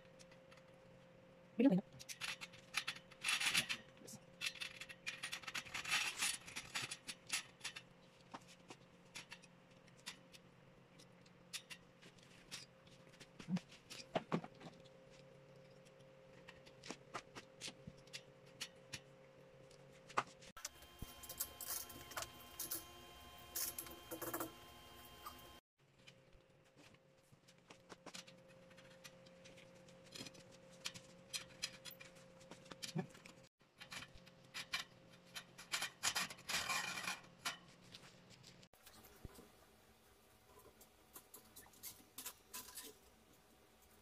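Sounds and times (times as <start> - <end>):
metal wire shelf clicks and scrapes: 2.0 - 14.8, 20.0 - 25.6, 27.9 - 39.5, 40.5 - 43.1
faint steady hum: 14.6 - 33.4.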